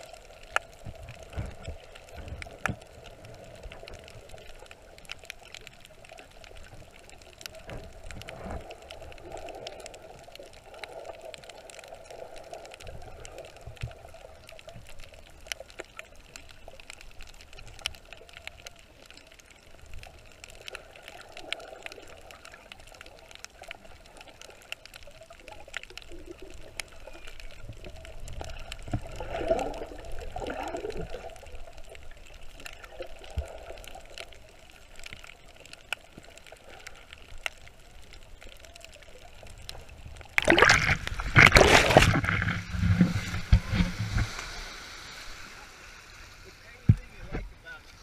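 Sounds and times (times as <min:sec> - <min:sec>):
faint underwater clicks: 0:00.0 - 0:48.0
muffled underwater ambience: 0:00.0 - 0:48.0
splashing surf: 0:40.4 - 0:48.0.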